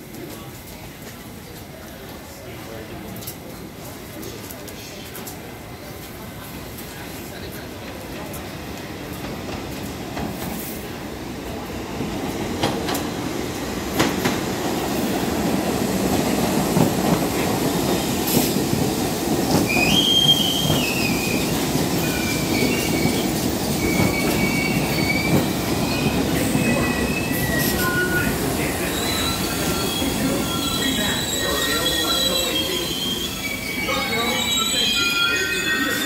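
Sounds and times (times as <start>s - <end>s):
subway train wheels rumbling: 0.0s - 36.0s
high-pitched wheel squeals: 28.9s - 36.0s.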